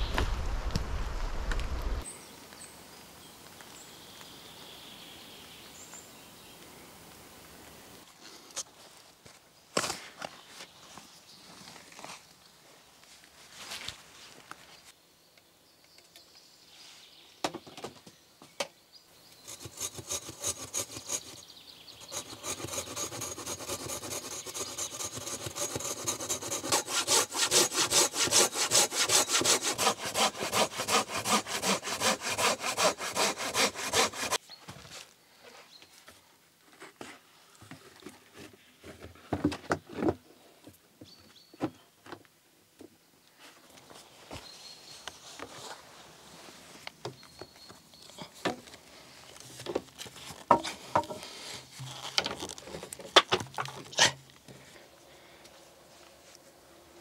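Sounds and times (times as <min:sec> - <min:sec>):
hand saw cutting wood: 0:19.4 - 0:34.4.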